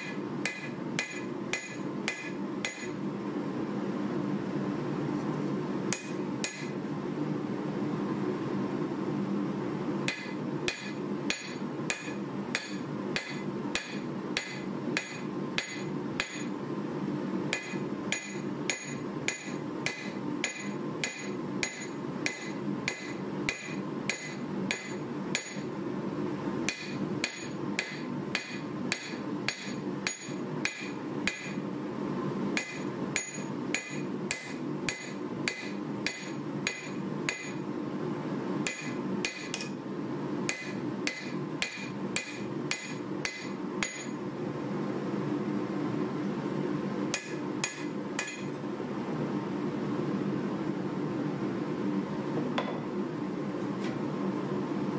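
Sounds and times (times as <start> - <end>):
low background hum: 0.0 - 54.9
hammer ringing on anvil: 0.4 - 3.0, 5.9 - 6.7, 10.1 - 16.5, 17.5 - 25.7, 26.7 - 31.6, 32.6 - 37.6, 38.7 - 39.7, 40.5 - 44.2, 47.2 - 48.5.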